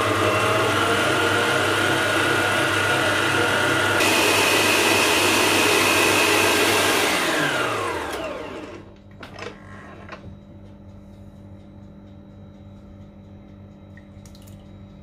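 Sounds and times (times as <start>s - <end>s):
stand mixer whine: 0.0s - 10.3s.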